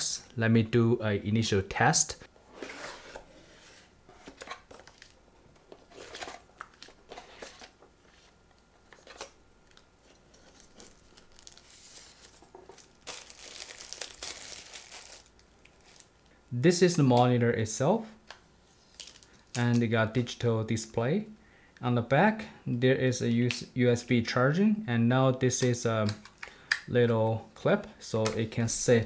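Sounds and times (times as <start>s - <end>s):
plastic wrap crinkling: 9.7s - 16.3s, 18.9s - 19.6s.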